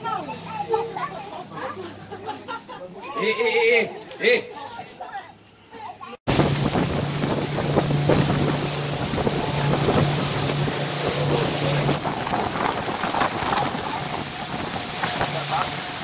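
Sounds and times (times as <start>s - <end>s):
motorboat engine hum: 6.3s - 16.0s
water rushing past hull: 6.3s - 16.0s
wind buffeting microphone: 6.3s - 16.0s.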